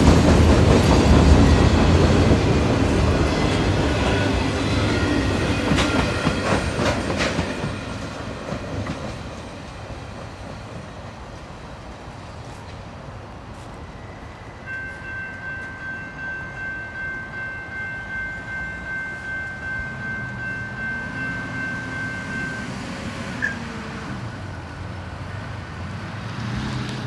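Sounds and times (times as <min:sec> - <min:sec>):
railroad crossing bell ringing: 0:13.5 - 0:25.4.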